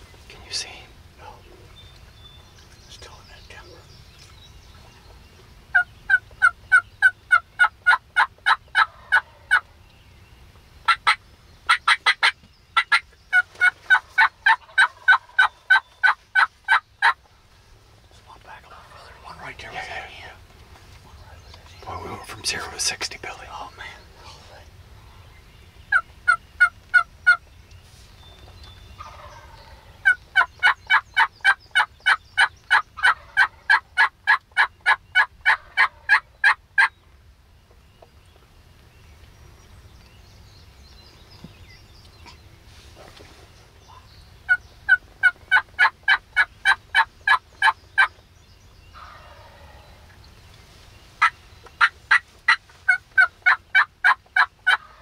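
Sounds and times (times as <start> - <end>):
turkey yelping: 5.7 - 9.7, 10.9 - 17.2, 25.9 - 27.4, 29.0 - 36.9, 43.9 - 48.1, 51.2 - 55.0.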